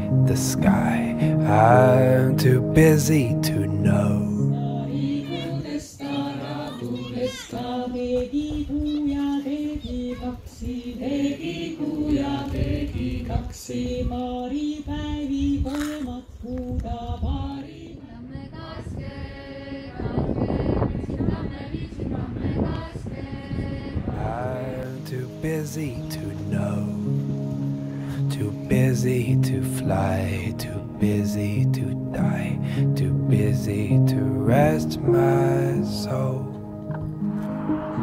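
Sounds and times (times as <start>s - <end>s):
wordless choir singing: 0.0s - 14.9s, 17.3s - 38.0s.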